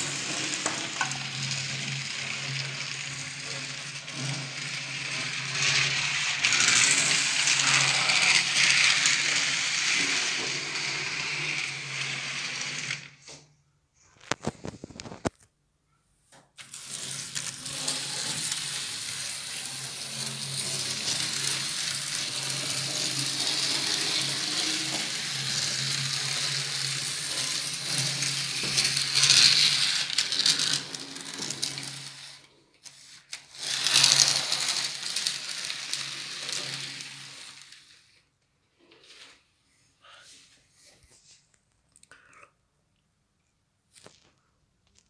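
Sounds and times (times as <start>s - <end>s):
small wheels rattling over rails: 0.0s - 13.0s, 16.7s - 32.4s, 33.5s - 37.7s.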